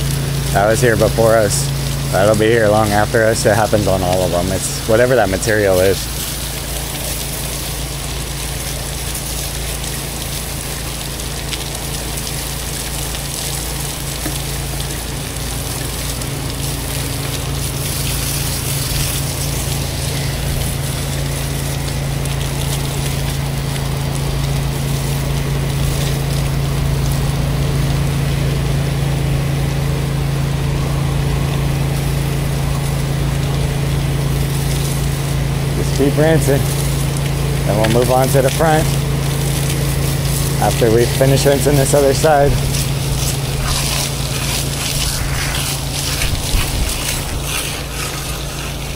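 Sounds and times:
pressure washer engine and pump hum: 0:00.0 - 0:48.9
water spray hissing and splashing: 0:00.0 - 0:48.9.

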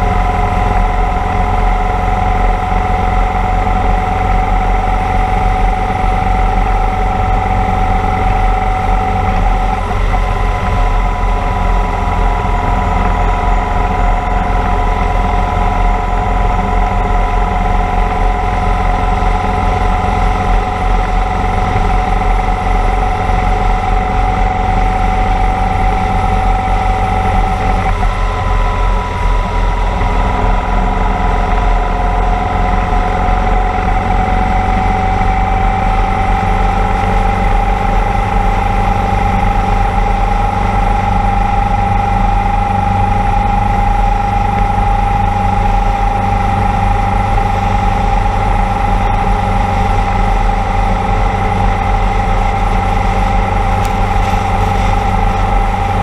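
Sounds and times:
motorcycle engine running: 0:00.0 - 0:56.0
wind rushing over microphone: 0:00.0 - 0:56.0.

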